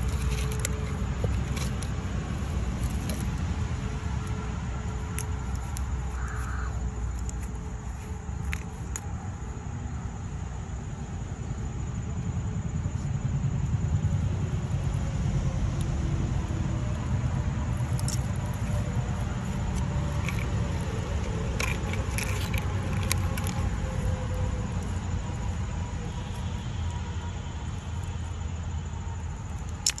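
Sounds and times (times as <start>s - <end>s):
light clicks and clinks: 17.8s - 23.7s.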